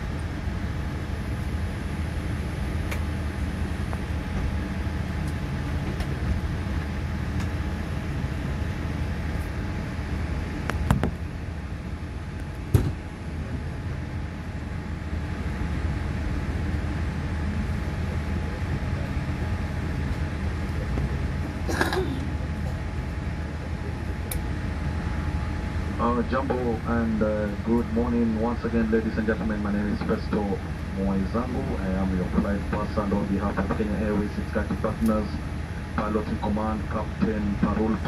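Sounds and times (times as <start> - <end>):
aircraft cabin rumble: 0.0 - 38.0.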